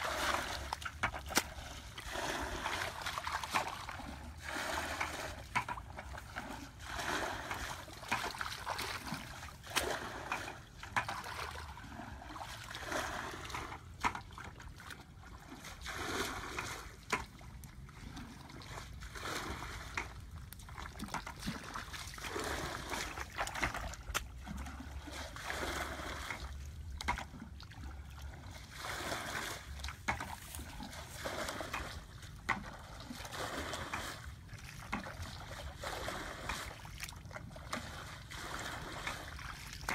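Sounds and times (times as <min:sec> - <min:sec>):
hands splashing in muddy water: 0:00.0 - 0:11.7.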